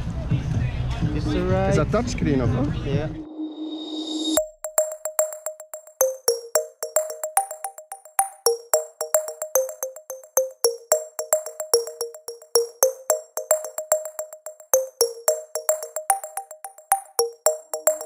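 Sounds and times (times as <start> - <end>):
percussion clicks: 4.4 - 18.0
plucked synth notes: 4.4 - 18.0.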